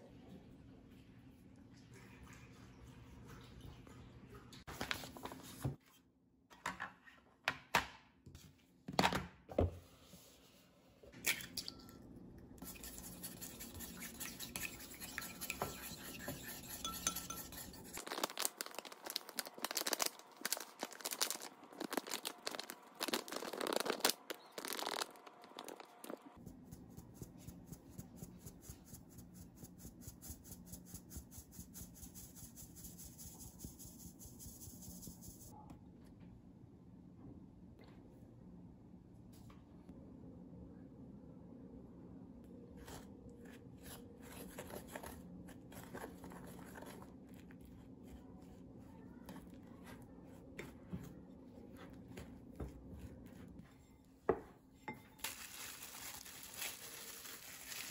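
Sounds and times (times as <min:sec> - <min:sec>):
plastic packet crinkling: 0:18.0 - 0:26.2, 0:55.2 - 0:57.9.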